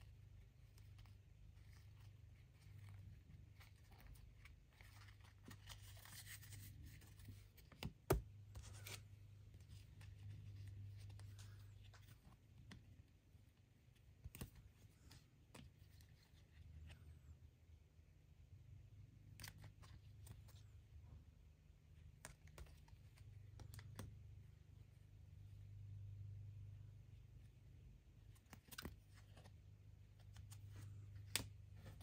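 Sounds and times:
cards rustling and sliding: 0.0s - 13.2s, 13.9s - 17.2s, 19.2s - 20.8s, 22.1s - 24.3s, 28.2s - 32.0s.

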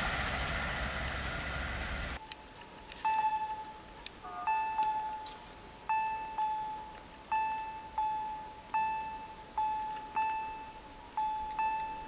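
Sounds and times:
level crossing warning bell: 3.1s - 12.0s.

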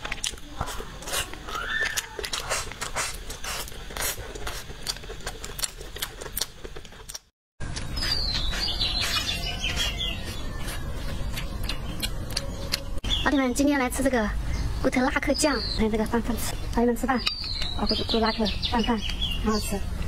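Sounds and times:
wet chewing and sucking: 0.0s - 13.0s
birds chirping: 7.8s - 19.9s.

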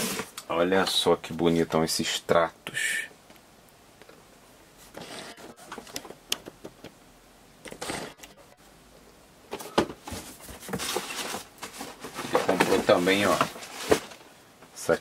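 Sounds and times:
cardboard box rustling: 9.6s - 14.2s.

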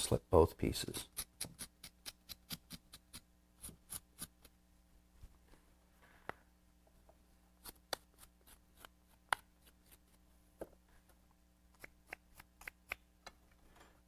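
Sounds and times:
tool scratching clay: 1.0s - 4.5s, 7.6s - 10.2s.

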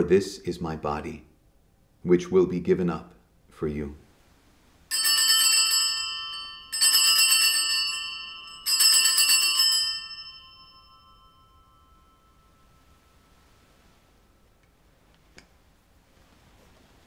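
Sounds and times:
small altar bells jangling: 4.9s - 14.0s.

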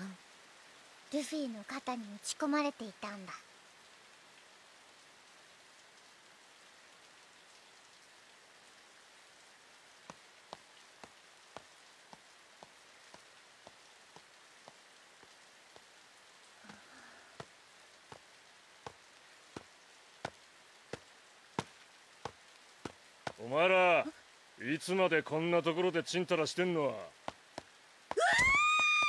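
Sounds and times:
light rain: 0.0s - 29.0s
footsteps on wet path: 10.1s - 15.9s, 17.4s - 19.0s, 19.6s - 23.4s.

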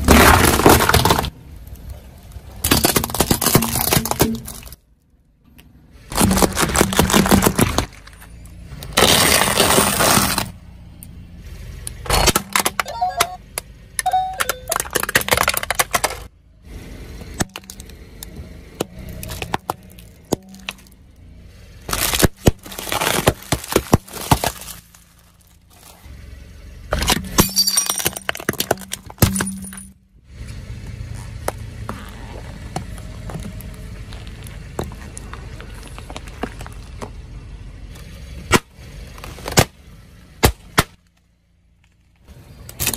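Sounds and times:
tyre crushing plastic containers: 0.0s - 1.4s, 2.6s - 4.8s, 6.1s - 8.2s, 14.7s - 16.3s, 21.9s - 25.9s.

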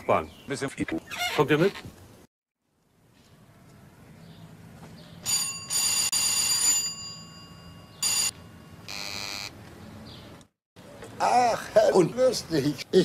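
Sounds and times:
doorbell ringing: 5.2s - 9.5s.

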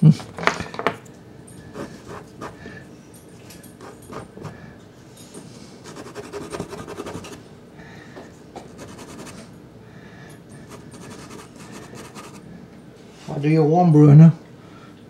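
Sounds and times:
pastel stick scratching on card: 5.9s - 7.4s, 8.7s - 9.4s, 10.7s - 12.4s.

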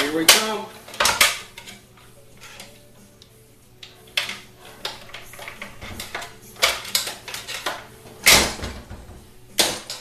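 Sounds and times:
metal parts knocking and clanking: 4.2s - 10.0s.

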